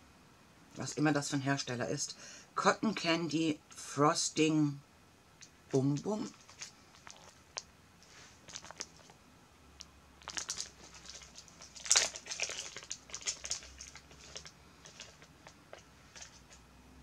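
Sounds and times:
plastic bag crinkling: 6.0 - 9.2, 10.2 - 16.6.

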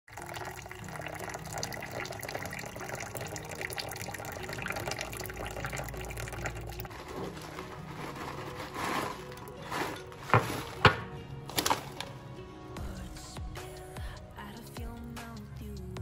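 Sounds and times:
water pouring into mug: 0.0 - 10.8.

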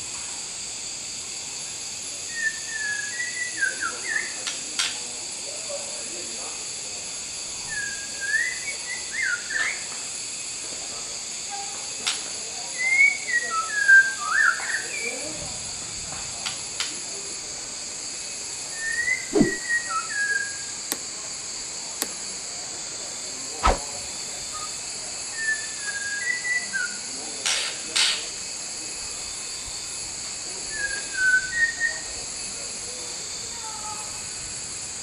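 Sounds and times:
bird singing whistled notes: 2.3 - 4.4, 18.8 - 20.6
high-pitched hiss: 17.1 - 27.2, 28.2 - 35.0.

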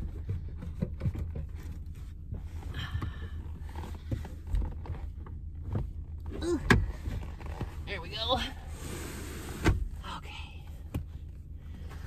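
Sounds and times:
car seat clicks and knocks: 0.0 - 2.5, 3.7 - 7.8
low steady rumble: 0.0 - 12.0
car seat scraping: 3.5 - 10.0.

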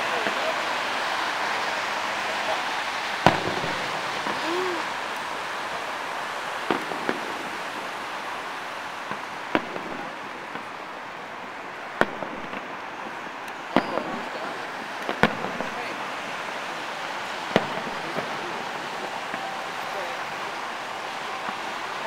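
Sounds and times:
distant firework bangs: 0.0 - 5.5, 6.6 - 22.0
steady background hiss: 0.0 - 22.0.

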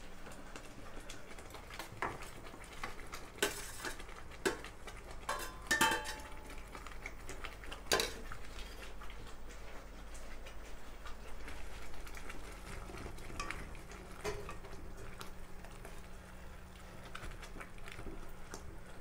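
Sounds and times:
spatula scraping a pan: 3.4 - 4.0.

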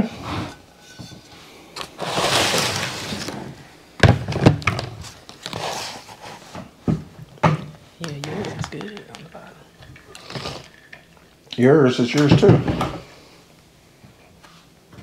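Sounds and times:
plate scraping on table: 0.1 - 3.6
ceramic plates knocking: 6.9 - 10.2.

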